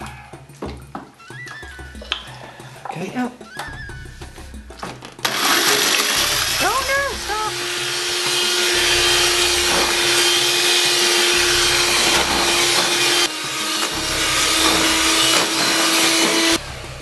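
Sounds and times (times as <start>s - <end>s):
electric hand mixer running: 5.2s - 17.0s.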